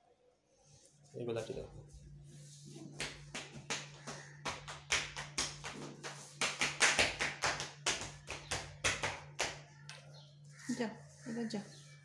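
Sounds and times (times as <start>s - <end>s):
rapid sharp taps: 3.0s - 9.6s.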